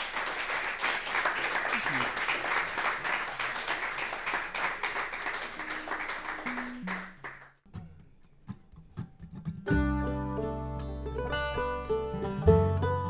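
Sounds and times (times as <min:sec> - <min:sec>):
audience applause: 0:00.0 - 0:07.5
low plucked notes: 0:08.8 - 0:13.0
bluegrass band playing: 0:09.4 - 0:13.0.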